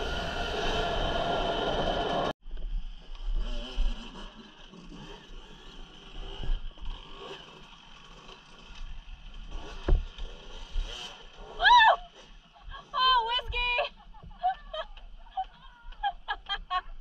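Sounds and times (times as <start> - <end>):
dirt bike motor: 0.0 - 16.9.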